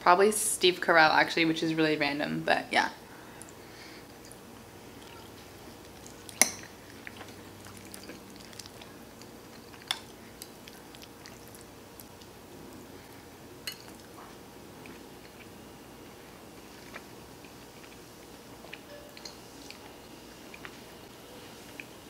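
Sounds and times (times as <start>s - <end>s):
spoon clinking glass dish: 18.9s - 19.4s.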